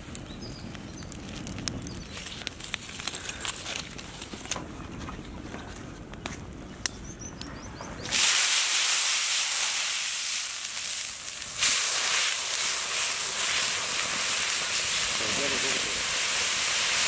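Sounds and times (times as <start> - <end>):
water hissing on hot griddle: 8.1 - 17.0.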